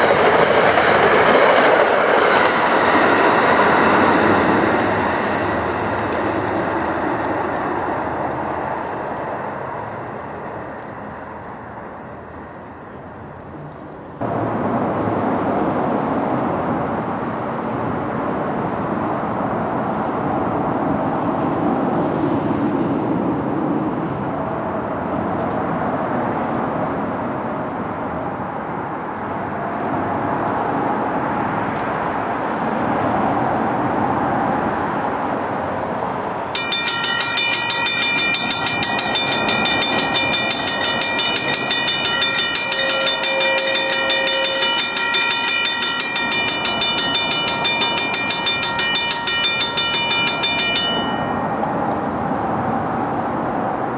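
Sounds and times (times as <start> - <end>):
crossing bell ringing: 0.0 - 11.5, 36.6 - 52.6
train rumbling on rails: 0.0 - 53.9.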